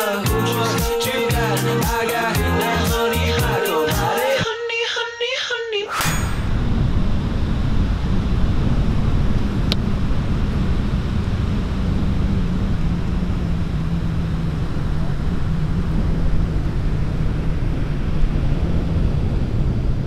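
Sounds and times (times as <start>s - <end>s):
low hum: 5.9s - 20.0s.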